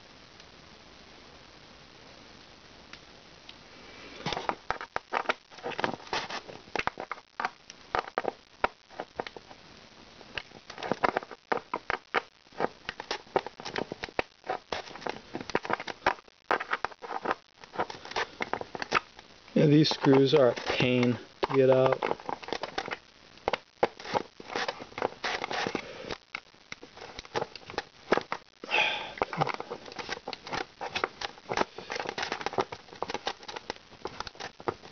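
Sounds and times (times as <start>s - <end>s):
screwdriver clicking and scraping: 10.4s - 19.2s, 19.8s - 28.4s, 29.2s - 34.9s.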